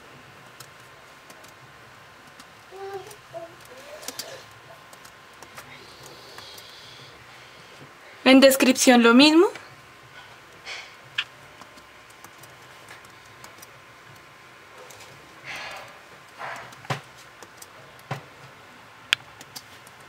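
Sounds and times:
laptop keyboard typing: 0.4 - 6.9, 11.2 - 15.2, 15.8 - 18.4, 19.2 - 20.0.

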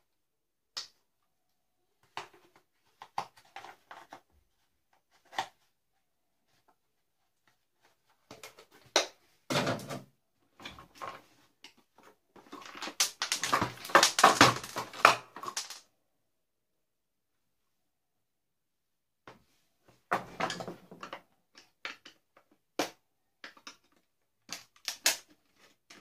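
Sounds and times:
plastic parts clattering: 2.0 - 4.3, 7.8 - 15.8.

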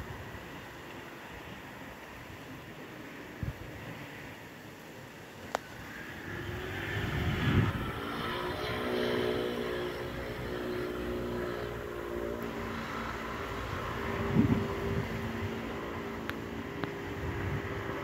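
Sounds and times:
engine running steadily: 0.0 - 18.0.

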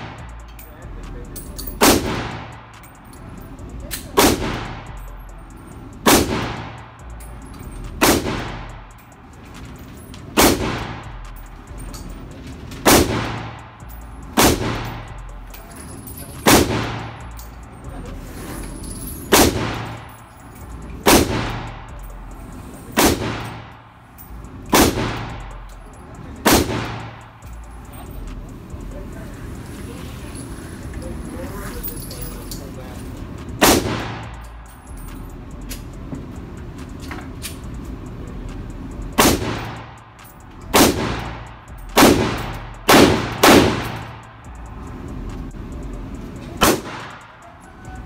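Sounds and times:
pistol shots echoing: 1.8 - 2.8, 3.9 - 5.0, 6.0 - 7.0, 7.9 - 9.0, 10.3 - 11.2, 12.8 - 15.2, 16.4 - 17.3, 19.3 - 20.3, 21.0 - 21.9, 22.9 - 24.0, 24.6 - 25.6, 26.2 - 27.4, 33.5 - 34.4, 39.2 - 40.0, 40.7 - 44.5, 46.6 - 47.5.

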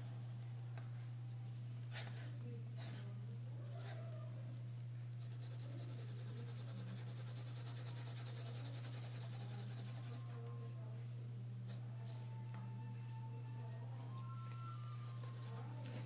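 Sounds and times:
steady low hum: 0.0 - 16.0
pencil scratching on paper: 5.2 - 10.2.

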